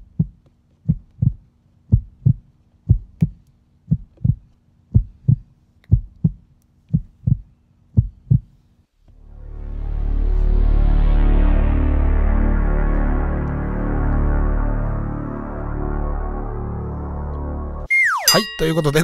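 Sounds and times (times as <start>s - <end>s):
heartbeat thumps: 0.0s - 8.5s
music: 9.1s - 19.0s.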